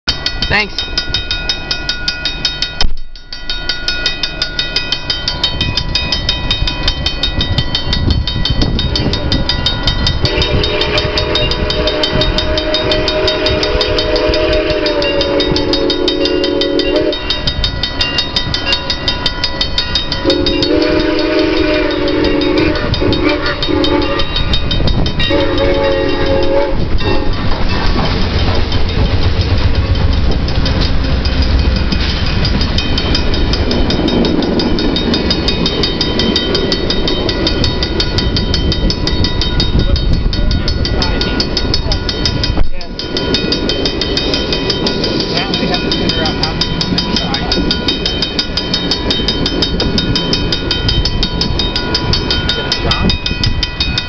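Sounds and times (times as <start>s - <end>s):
train rumble: 0.0s - 54.0s
railroad crossing bells: 0.1s - 54.0s
locomotive horn: 10.2s - 17.3s, 20.2s - 24.4s, 25.2s - 27.3s.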